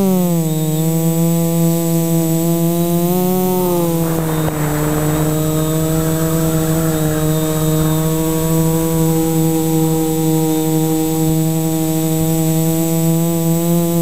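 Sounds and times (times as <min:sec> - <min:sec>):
drone motors buzzing: 0:00.0 - 0:14.0
rush of air: 0:03.5 - 0:11.8.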